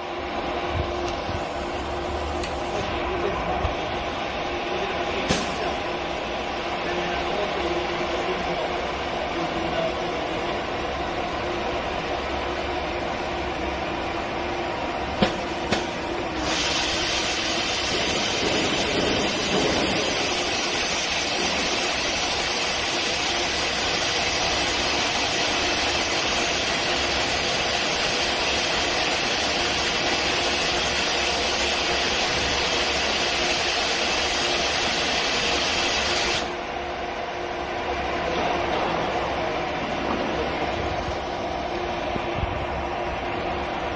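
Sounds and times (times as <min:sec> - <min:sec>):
compressed air hiss: 0:16.4 - 0:24.8.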